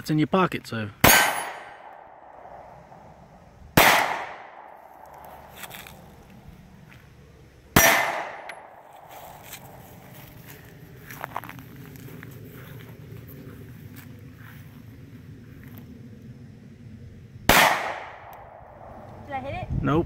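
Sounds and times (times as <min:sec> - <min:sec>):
pistol shots: 0:01.0 - 0:02.5, 0:03.8 - 0:05.2, 0:07.7 - 0:08.8, 0:17.5 - 0:18.6.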